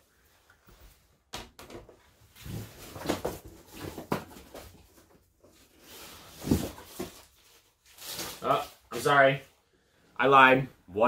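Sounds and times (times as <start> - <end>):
plastic slabs knocking and rustling: 1.3 - 5.1.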